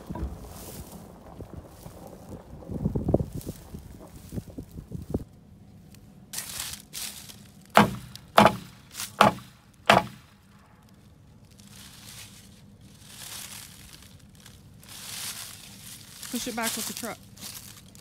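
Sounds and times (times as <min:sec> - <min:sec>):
tool knocking on wooden fence: 0:07.8 - 0:10.2.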